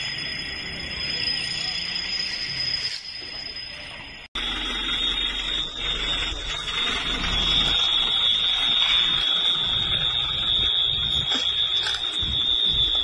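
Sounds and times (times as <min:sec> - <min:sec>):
high-pitched electronic alarm tone: 0:00.0 - 0:13.0
low rumbling noise: 0:04.4 - 0:13.0.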